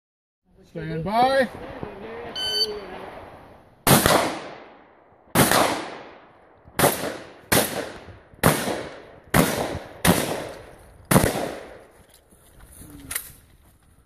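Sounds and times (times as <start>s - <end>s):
shotgun shots with echo: 3.8s - 11.8s.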